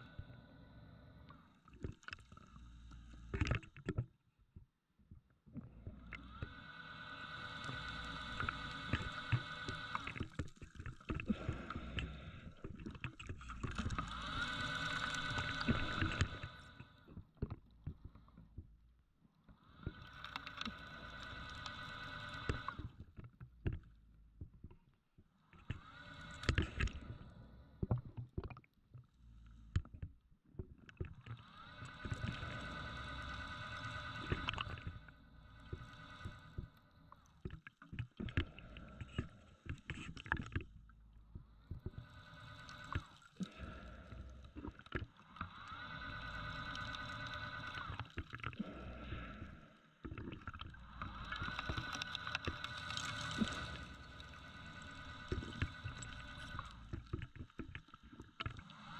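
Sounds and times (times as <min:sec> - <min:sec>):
scuba regulator breathing: 0:06.1 - 0:18.8, 0:19.5 - 0:23.1, 0:25.4 - 0:28.2, 0:31.2 - 0:37.5, 0:38.2 - 0:58.9.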